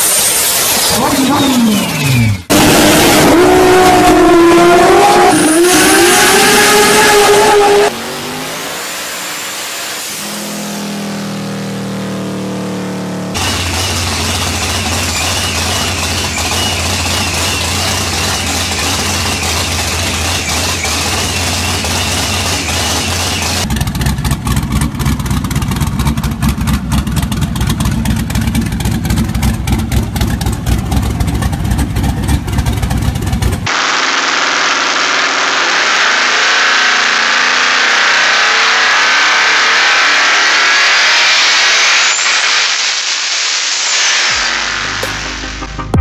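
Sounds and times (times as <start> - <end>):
turbo engine rushing at high revs: 0.0 - 46.0
race engine choppy low beat: 10.2 - 33.9, 44.7 - 46.0
faint rising whistle: 14.8 - 23.6, 34.3 - 45.5.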